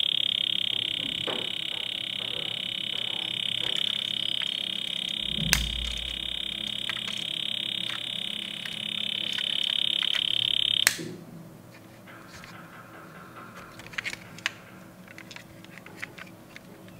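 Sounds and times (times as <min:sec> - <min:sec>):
toy car electronic buzz: 0:00.0 - 0:11.1
toy switch click: 0:03.6 - 0:11.2.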